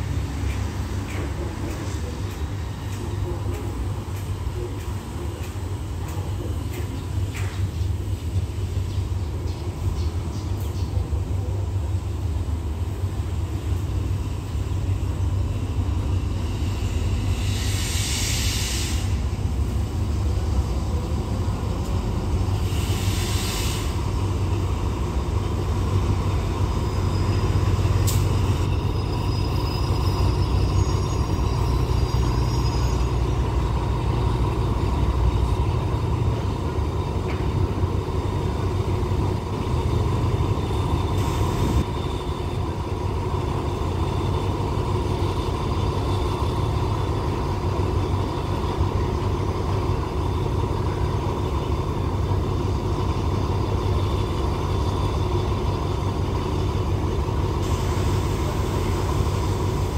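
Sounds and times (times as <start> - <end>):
diesel locomotive rumbling: 0.0 - 59.9
air brake hisses: 16.8 - 19.4, 22.6 - 24.2, 57.6 - 59.8.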